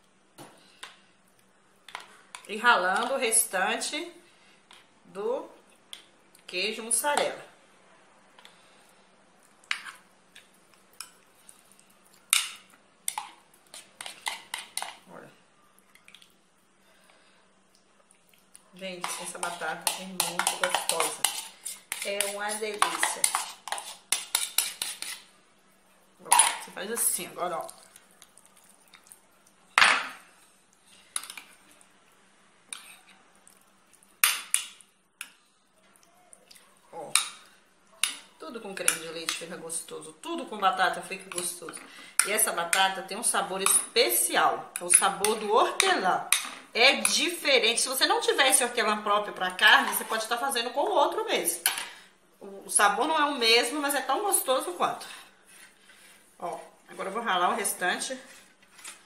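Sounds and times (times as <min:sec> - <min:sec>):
metal spoon scraping and tapping bowl: 0:12.3 - 0:15.0, 0:19.0 - 0:25.3, 0:43.6 - 0:43.9.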